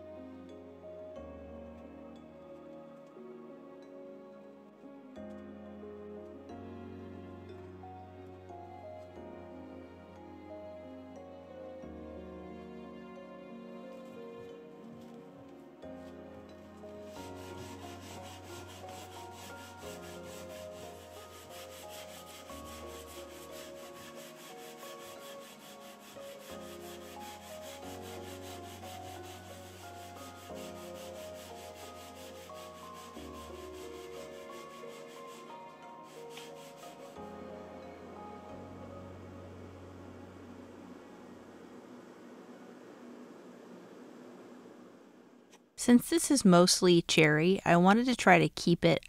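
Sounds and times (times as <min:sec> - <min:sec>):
soft background music: 0:00.0 - 0:48.7
sanding pad rubbing wood: 0:17.0 - 0:38.2.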